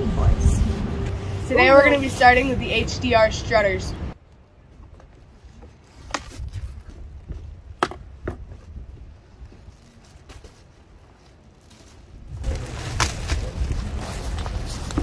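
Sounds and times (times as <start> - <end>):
low steady rumble: 0.0 - 4.7.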